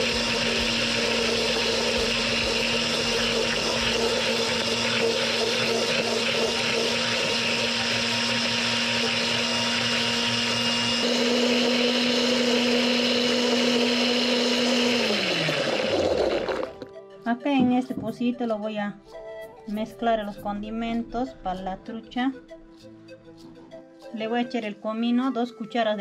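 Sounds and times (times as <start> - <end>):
blender running: 0.0 - 16.9.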